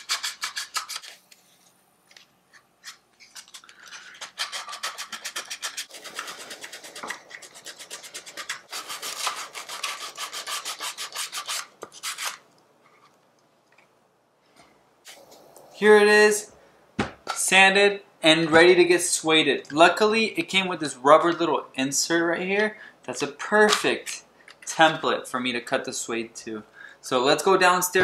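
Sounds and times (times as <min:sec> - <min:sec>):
sandpaper rubbing: 0:00.0 - 0:01.6, 0:03.4 - 0:12.4.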